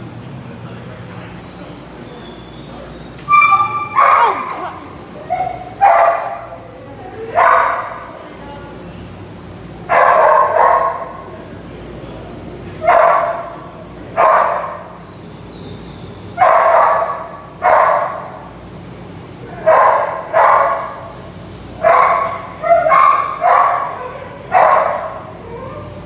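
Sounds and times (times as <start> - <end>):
dog barking: 3.6 - 4.8, 5.4 - 6.5, 7.3 - 8.0, 9.9 - 11.2, 12.8 - 13.5, 14.2 - 14.9, 16.4 - 18.3, 19.6 - 21.0, 21.8 - 25.3.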